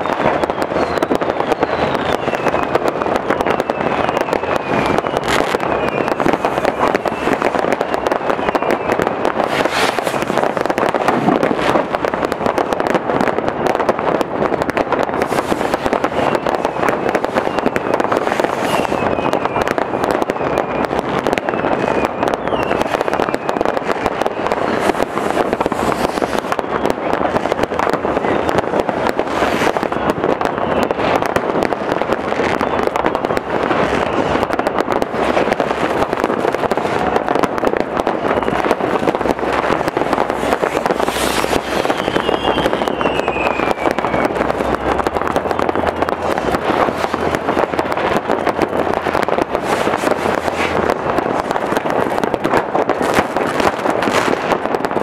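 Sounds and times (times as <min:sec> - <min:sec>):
firework whistles sliding down: 0:00.0 - 0:12.7, 0:14.8 - 0:37.4, 0:38.0 - 0:54.5
fireworks bangs and crackles: 0:00.0 - 0:55.0.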